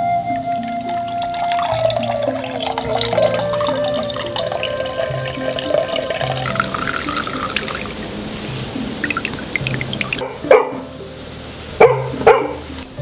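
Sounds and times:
background music: 0:00.0 - 0:13.0
juice trickling into glass bowl: 0:00.8 - 0:10.2
dog barking: 0:10.2 - 0:10.8, 0:11.8 - 0:12.6.

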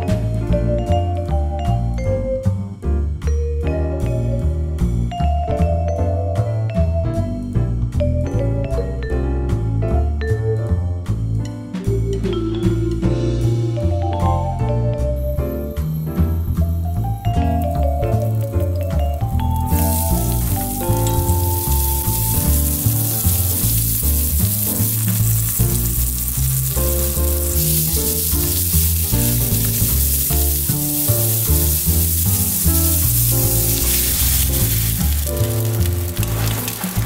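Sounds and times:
melodic background music: 0:00.0 - 0:37.0
garlic sizzling in oil: 0:16.5 - 0:37.0.

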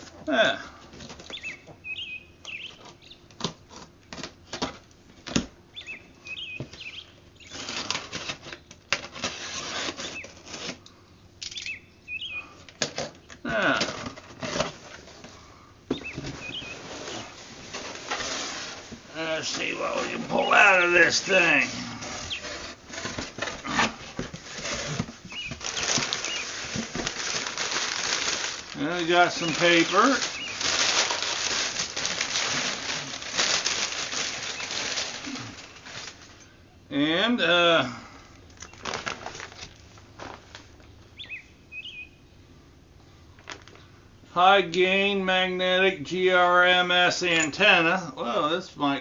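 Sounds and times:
packing paper rustling: 0:06.4 - 0:10.9, 0:12.7 - 0:36.5, 0:38.5 - 0:40.8
box cutter cutting tape: 0:07.5 - 0:10.8.

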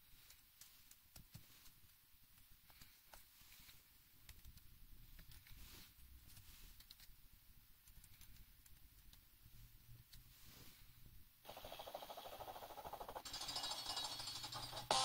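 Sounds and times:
typing on a keyboard: 0:11.5 - 0:15.0.

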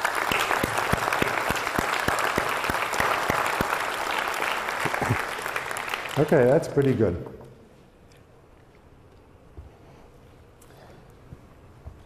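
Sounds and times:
evenly spaced loud claps: 0:00.0 - 0:07.2
large audience applauding: 0:00.0 - 0:07.2.

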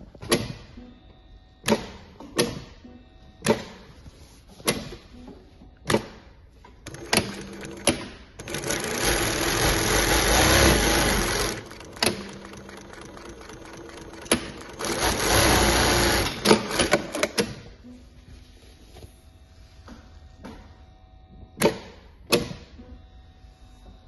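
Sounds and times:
sewing machine clicks: 0:06.8 - 0:17.4
sewing machine stitching denim: 0:06.8 - 0:17.5.

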